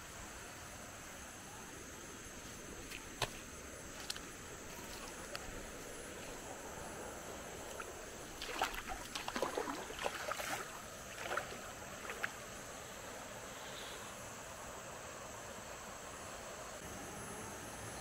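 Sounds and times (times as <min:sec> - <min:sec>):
high background hiss: 0:00.0 - 0:18.0
water splashing: 0:07.4 - 0:12.6.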